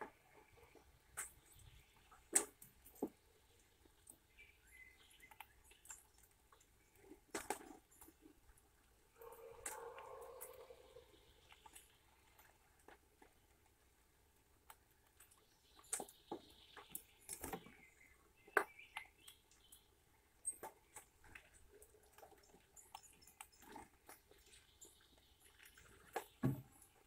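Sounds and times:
squirrel cracking seed shells: 1.2 - 13.8.

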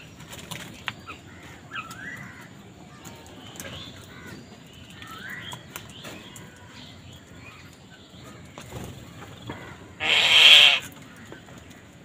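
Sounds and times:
faint crow calls: 4.1 - 5.6, 9.4 - 12.0
loud harsh crow caw: 10.0 - 10.9.

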